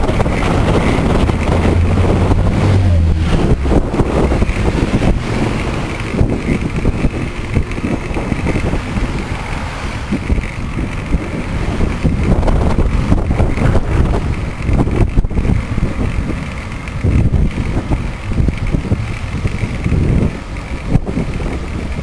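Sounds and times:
road traffic rumble: 0.0s - 22.0s
wind buffeting microphone: 0.0s - 22.0s.

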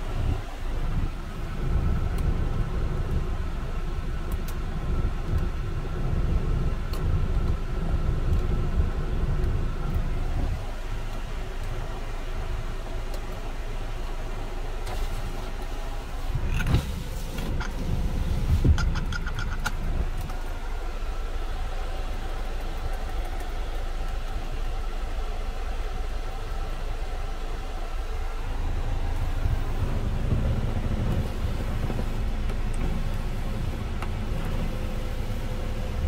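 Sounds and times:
diesel engine idling: 0.0s - 36.0s
rapid clicks: 22.0s - 24.4s.

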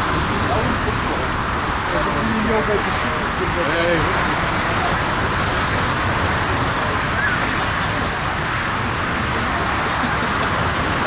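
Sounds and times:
jet engines rushing: 0.0s - 11.0s.

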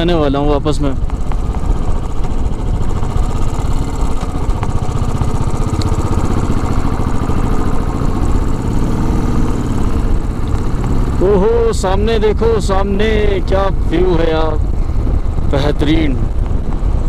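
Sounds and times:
motorcycle engine rumbling: 0.0s - 17.0s
road and air noise: 0.0s - 17.0s.

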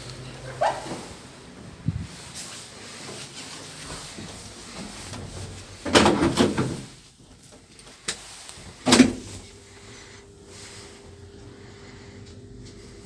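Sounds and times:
faint steady hum: 6.6s - 13.0s.

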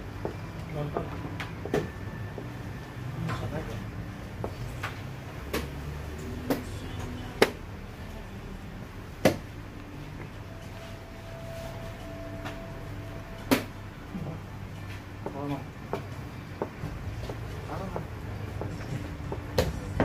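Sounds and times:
low steady hum: 0.0s - 20.0s
faint steady tone: 9.6s - 15.2s.

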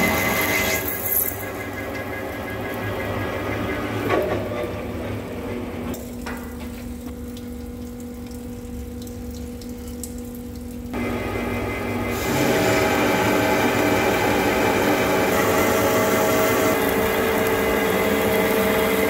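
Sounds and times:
lathe cutting metal: 0.0s - 5.8s, 11.0s - 19.0s
machine hum: 0.0s - 19.0s
coolant stream splashing: 5.9s - 11.0s, 12.0s - 19.0s.

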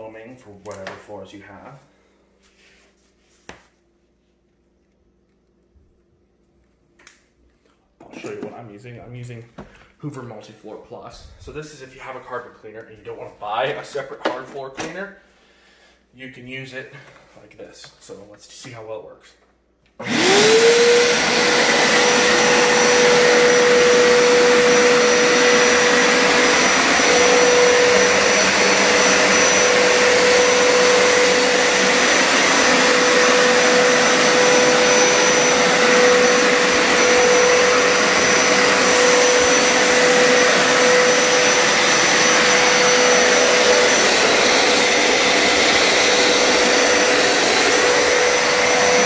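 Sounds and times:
carpet cleaner high whine: 20.0s - 49.0s
carpet cleaner rushing: 20.0s - 49.0s.

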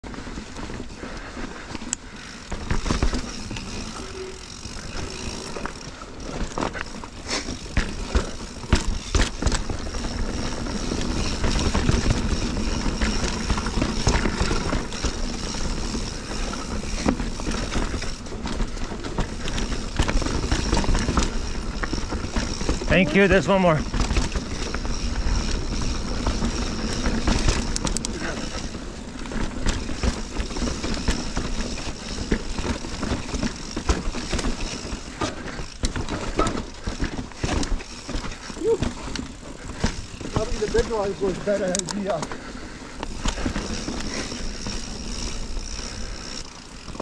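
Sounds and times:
wheels knocking on rocks: 0.1s - 47.0s.

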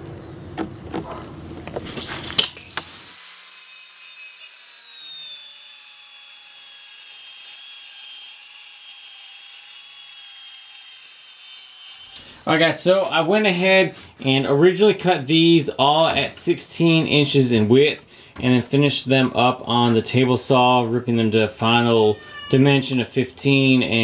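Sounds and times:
circular saw cutting plywood: 1.8s - 12.5s.

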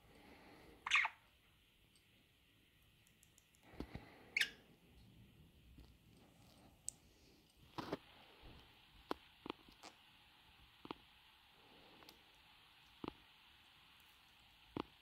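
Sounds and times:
budgerigar chirp: 0.9s - 1.2s.

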